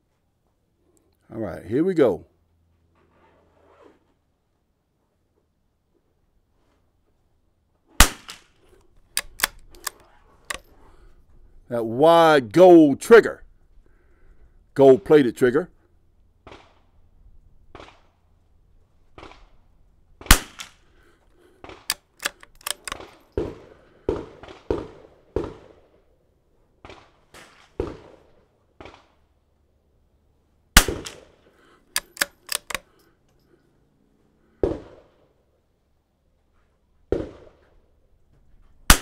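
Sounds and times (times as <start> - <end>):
rifle shots cracking: 8.0 - 10.6, 20.2 - 20.8, 21.7 - 25.9, 30.8 - 31.4, 32.0 - 32.8
rifle bolt clicks: 8.0 - 10.7, 21.7 - 23.2, 31.9 - 32.9.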